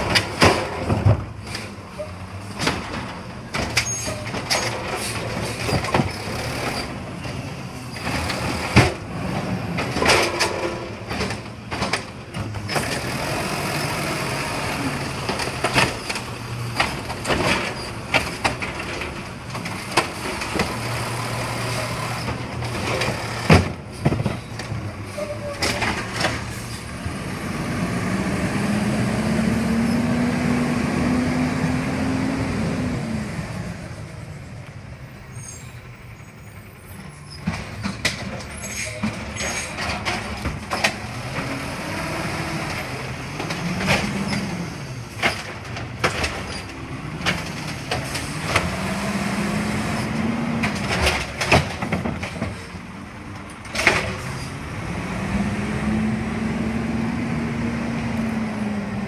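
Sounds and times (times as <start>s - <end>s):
clanks from lifting arm and carts: 0.0s - 27.0s, 37.0s - 54.7s
garbage truck diesel engine revving: 12.4s - 23.9s, 26.0s - 34.2s, 40.0s - 52.2s, 52.8s - 59.0s.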